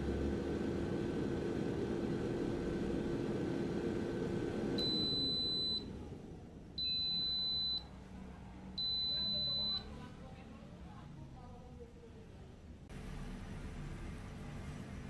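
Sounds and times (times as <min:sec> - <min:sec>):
air fryer fan humming: 0:00.0 - 0:10.1, 0:12.9 - 0:15.0
long high-pitched beeps: 0:04.8 - 0:05.8.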